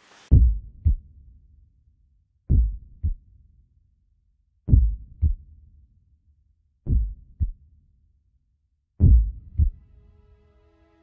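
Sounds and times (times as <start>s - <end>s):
slow heartbeat thumps: 0.3s - 1.1s, 2.5s - 3.2s, 4.7s - 5.5s, 6.9s - 7.6s, 9.0s - 9.9s.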